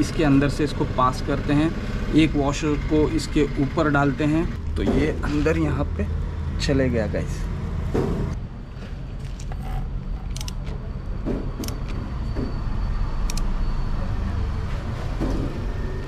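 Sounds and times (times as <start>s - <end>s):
socket ratchet clicking: 9.3s - 10.7s.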